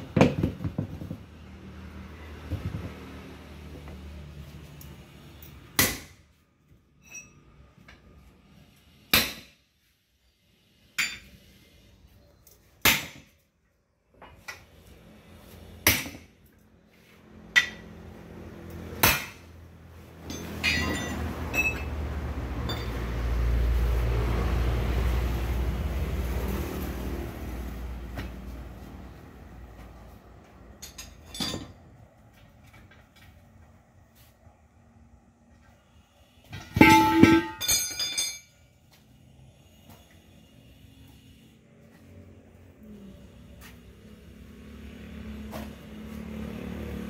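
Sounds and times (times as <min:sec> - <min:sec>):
hammer striking metal rim: 0:36.5 - 0:38.4.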